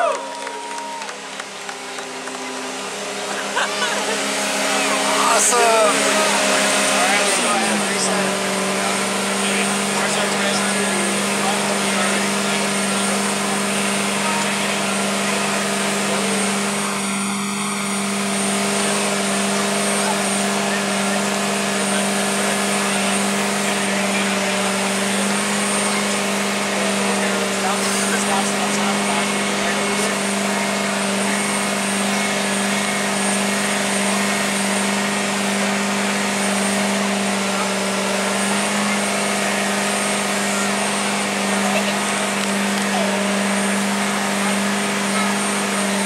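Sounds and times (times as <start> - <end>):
engine driving hydraulic pumps: 0.0 - 46.0.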